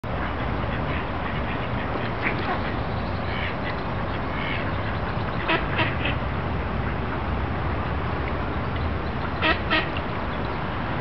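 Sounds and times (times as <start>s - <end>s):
ducks quacking: 0.2s - 6.2s, 9.4s - 10.0s.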